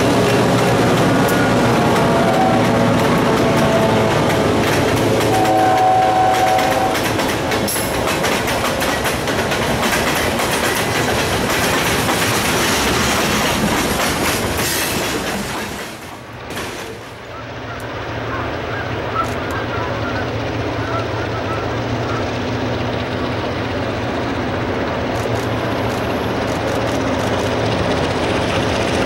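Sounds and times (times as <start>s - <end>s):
train wheels clattering over rails: 0.0s - 18.2s, 18.8s - 29.0s
locomotive air horn: 0.4s - 7.2s.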